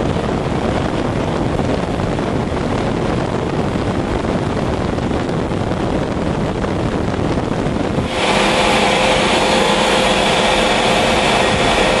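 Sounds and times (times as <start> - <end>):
jet engine rushing: 7.7 - 12.0
steady whining tones: 7.8 - 12.0.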